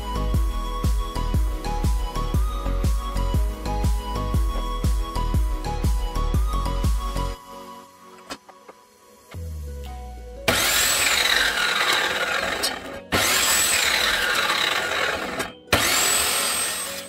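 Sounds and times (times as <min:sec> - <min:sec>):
electric mitre saw whining: 0:10.5 - 0:17.0
saw blade cutting wood: 0:10.5 - 0:17.0.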